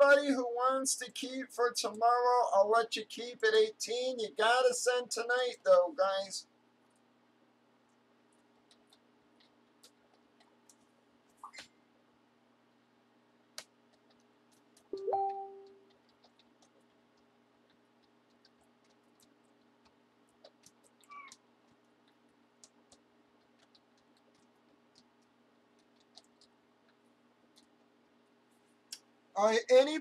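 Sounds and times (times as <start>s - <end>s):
steady low hum: 0.0s - 30.0s
faint clicks: 13.6s - 28.2s.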